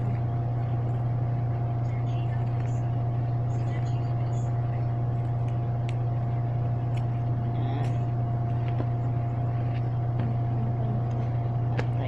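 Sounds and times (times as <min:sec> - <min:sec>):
low hum with higher tone: 0:00.0 - 0:12.0.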